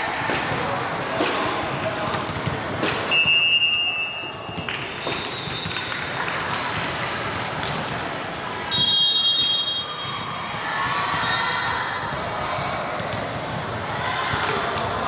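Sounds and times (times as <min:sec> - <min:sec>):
chatter of players and spectators: 0:00.0 - 0:15.0
referee's whistle blasts: 0:03.1 - 0:05.9, 0:08.7 - 0:10.2.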